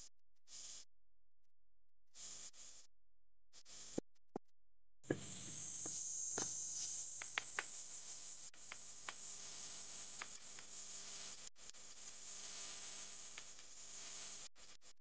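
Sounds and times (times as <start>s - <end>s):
sharp clicks: 7.2s - 7.7s.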